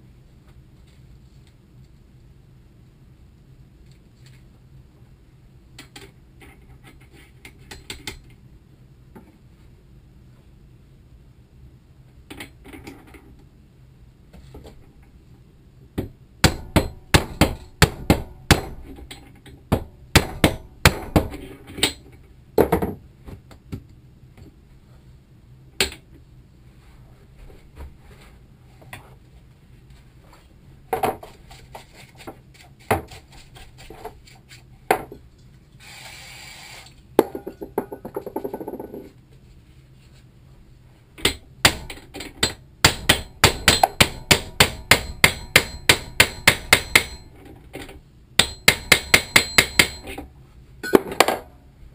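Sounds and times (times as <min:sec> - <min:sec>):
hammer striking metal: 0:16.4 - 0:18.9, 0:41.2 - 0:47.3, 0:48.4 - 0:50.2
short hiss: 0:35.8 - 0:37.0.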